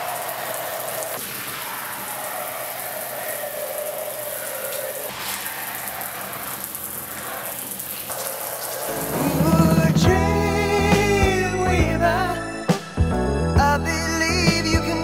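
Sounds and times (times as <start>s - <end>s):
water spraying from sink sprayer: 0.0s - 10.0s
music with bass line: 9.2s - 15.0s.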